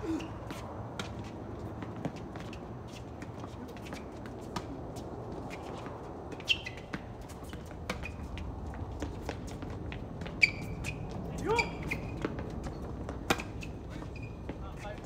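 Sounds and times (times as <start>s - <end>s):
sneakers squeaking on court: 0.0s - 15.0s
racket hitting tennis ball: 13.0s - 13.7s.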